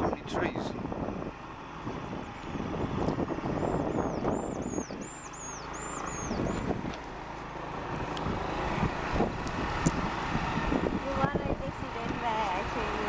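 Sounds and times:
wind noise: 0.0s - 7.0s, 7.8s - 13.0s
motorcycle engine: 0.0s - 13.0s
high chirps: 3.5s - 6.7s.

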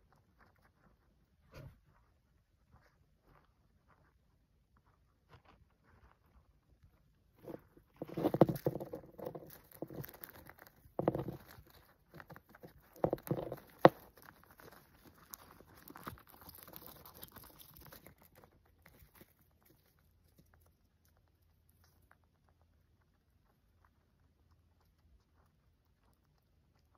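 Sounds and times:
hamster gnawing peanut: 6.9s - 26.9s.

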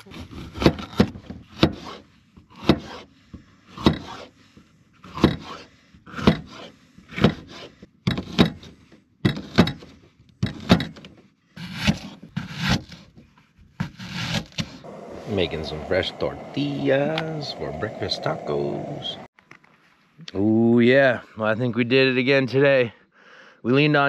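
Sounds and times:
knife chopping on cutting board: 2.6s - 3.0s, 3.8s - 4.2s.

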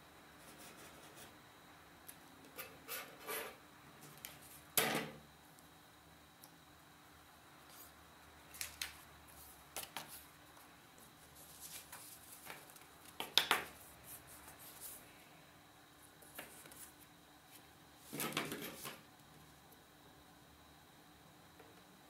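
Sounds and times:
paper rustling and snapping: 8.5s - 9.0s.

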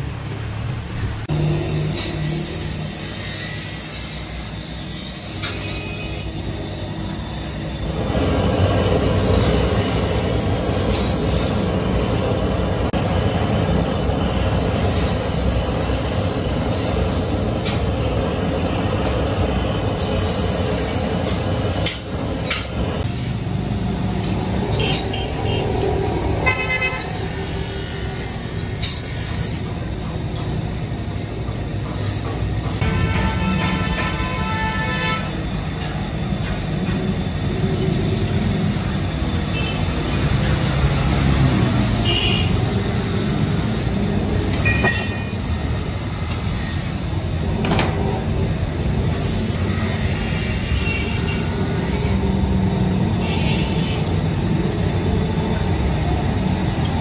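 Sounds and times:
street traffic noise: 0.0s - 57.0s
vehicle horn tooting: 26.4s - 27.2s, 32.8s - 35.3s, 42.0s - 42.6s, 53.2s - 54.0s.

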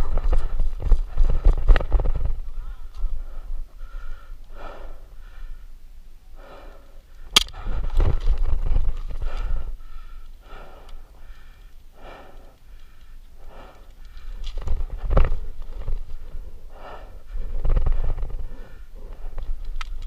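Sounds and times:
person breathing hard: 0.0s - 20.0s
sharp crack: 7.3s - 8.1s.

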